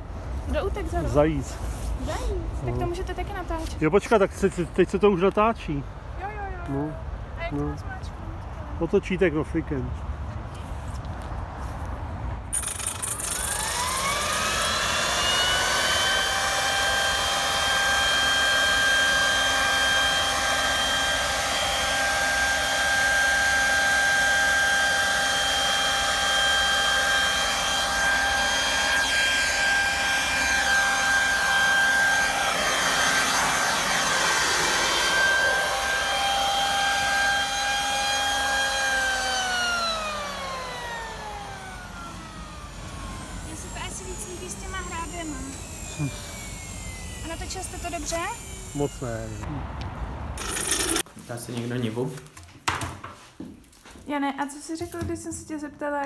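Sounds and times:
electric leaf blower whining: 0:12.5 - 0:49.5, 0:50.4 - 0:51.1.

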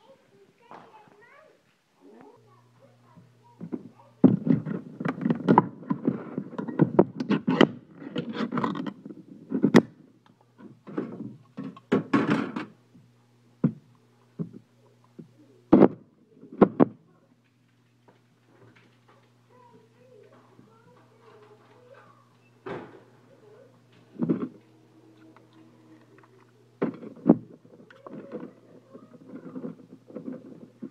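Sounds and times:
metallic clatter and scraping: 0:04.4 - 0:09.8, 0:24.2 - 0:30.9.

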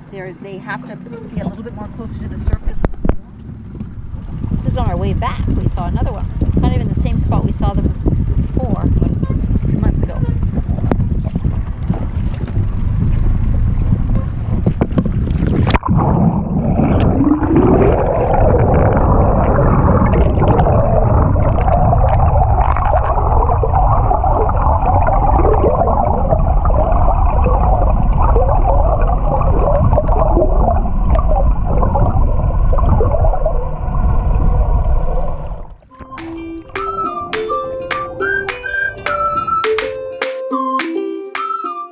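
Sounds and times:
surface wind and water noise: 0:00.0 - 0:40.1
water bubbling and gurgling: 0:01.4 - 0:39.6
underwater rushing water: 0:01.4 - 0:40.0
glockenspiel-like music notes: 0:35.9 - 0:41.9.

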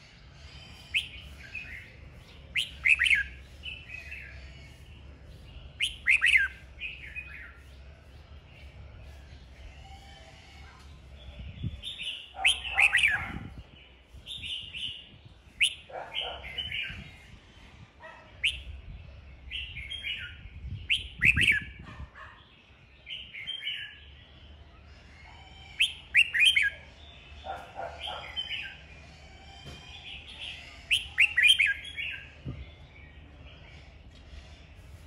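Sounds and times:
bird singing whistled phrases: 0:02.6 - 0:03.3, 0:05.8 - 0:06.5, 0:18.4 - 0:18.7, 0:20.9 - 0:21.7, 0:25.7 - 0:26.8, 0:30.9 - 0:31.9.

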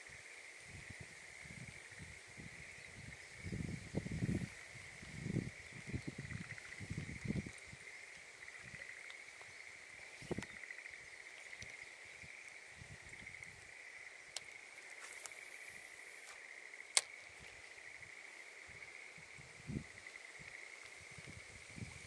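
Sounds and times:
insects trilling: 0:00.0 - 0:22.0
sharp clicks: 0:16.9 - 0:17.2.

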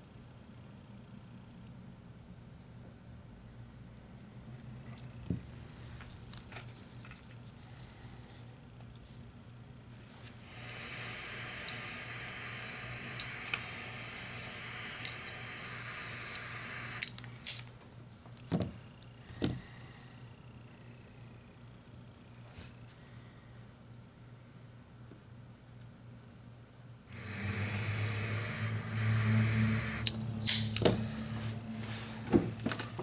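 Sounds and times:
low electrical hum: 0:00.0 - 0:33.0
steady hiss: 0:09.9 - 0:17.7, 0:27.1 - 0:32.2.

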